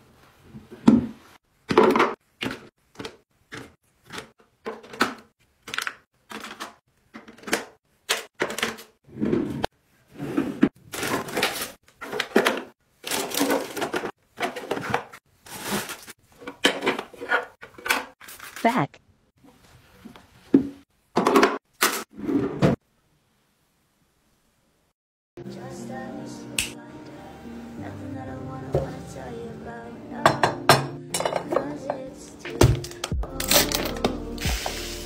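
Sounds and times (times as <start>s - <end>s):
plastic items scraping and tapping: 10.6s - 18.6s.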